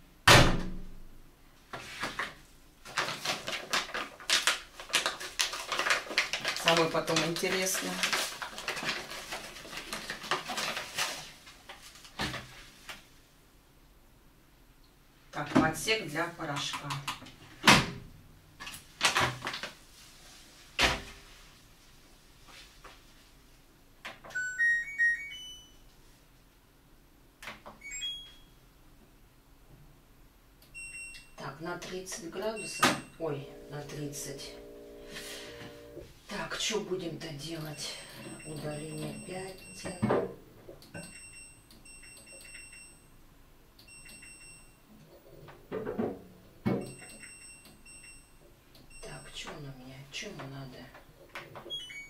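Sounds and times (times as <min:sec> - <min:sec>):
electronic beeps: 0:24.3 - 0:25.8, 0:27.8 - 0:28.5, 0:51.7 - 0:52.0
washing machine beeping: 0:24.3 - 0:25.8, 0:27.8 - 0:28.6, 0:30.8 - 0:31.4, 0:32.5 - 0:36.0, 0:37.7 - 0:40.0, 0:41.0 - 0:43.2, 0:43.8 - 0:44.9, 0:46.7 - 0:49.6, 0:51.7 - 0:52.0.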